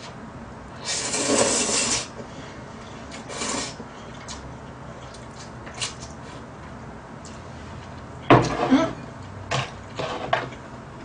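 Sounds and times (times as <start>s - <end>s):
person slurping noodles: 0.8s - 2.1s, 3.2s - 3.8s.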